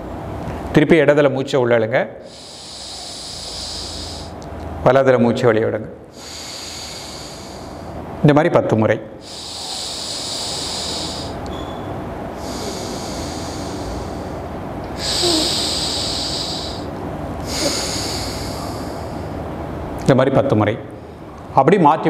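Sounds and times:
man breathing through nose: 0:02.2 - 0:04.5, 0:06.1 - 0:08.2, 0:09.2 - 0:19.5.

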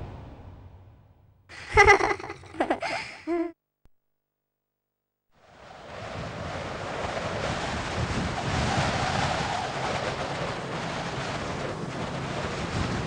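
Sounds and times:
steady rushing noise: 0:05.4 - 0:13.0.

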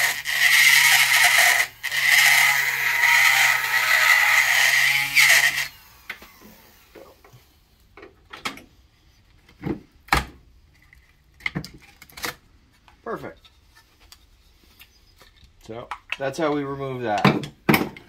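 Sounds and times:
die grinder whining: 0:00.0 - 0:07.5.

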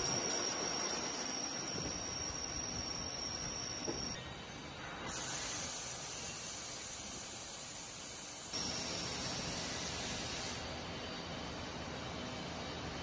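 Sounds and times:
compressed air blow gun hissing: 0:05.1 - 0:10.8.

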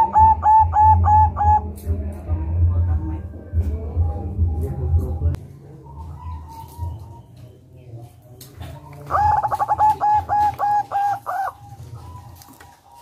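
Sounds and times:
dove cooing: 0:00.0 - 0:01.8, 0:05.6 - 0:07.9, 0:08.5 - 0:13.0.

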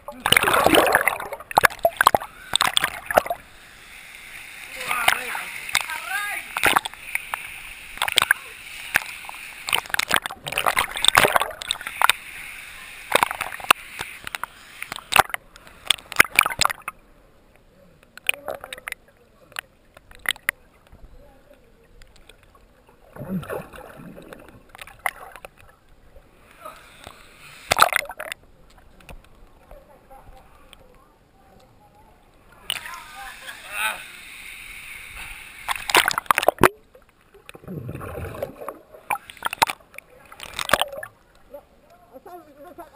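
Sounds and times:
water splashing: 0:00.0 - 0:17.0, 0:18.1 - 0:20.9, 0:21.8 - 0:30.1, 0:32.4 - 0:42.7
underwater clicks: 0:00.1 - 0:03.4, 0:04.9 - 0:12.4, 0:13.0 - 0:22.6, 0:23.2 - 0:29.8, 0:31.6 - 0:33.0, 0:35.6 - 0:42.0
low underwater burst: 0:23.0 - 0:25.4, 0:37.5 - 0:39.6.

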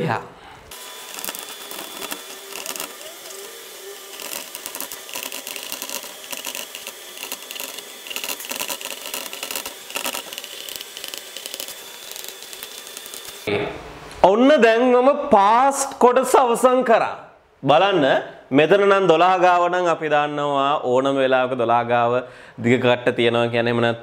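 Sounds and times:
chalk scratching on chalkboard: 0:01.1 - 0:13.4.

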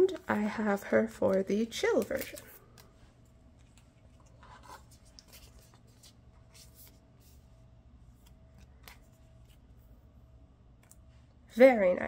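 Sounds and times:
cards rustling into plastic pockets: 0:01.3 - 0:07.4, 0:08.1 - 0:09.8.

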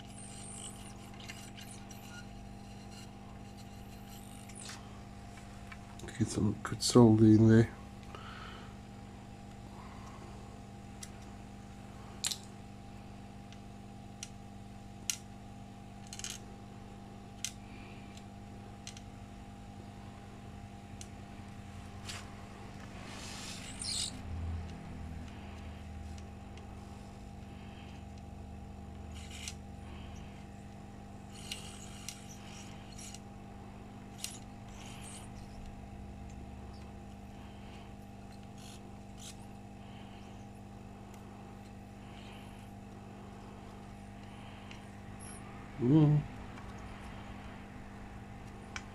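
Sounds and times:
faint steady hum: 0:00.0 - 0:48.9.

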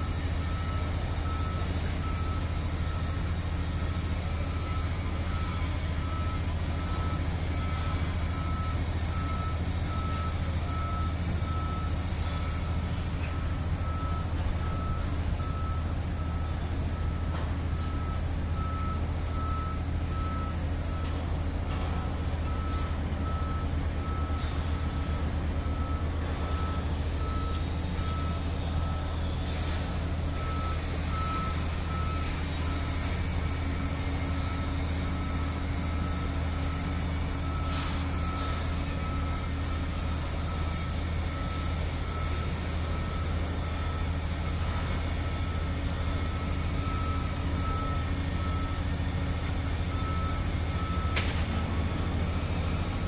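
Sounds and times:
backhoe diesel engine running: 0:00.0 - 0:53.0
reversing alarm beeping: 0:00.0 - 0:53.0.

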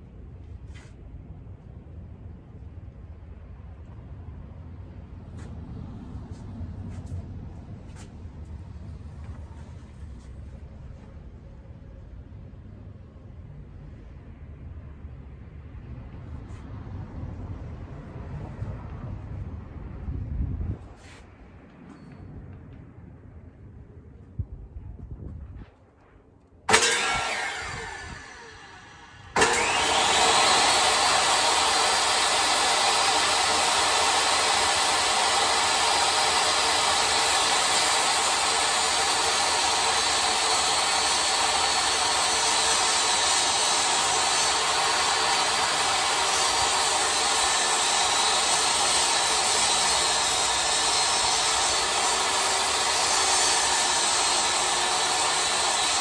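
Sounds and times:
saw cutting plywood: 0:26.7 - 0:56.0
table saw motor running: 0:26.7 - 0:56.0.

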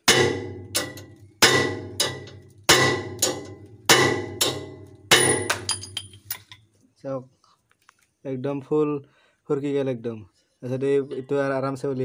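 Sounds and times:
hammer blows on metal: 0:00.0 - 0:06.1.

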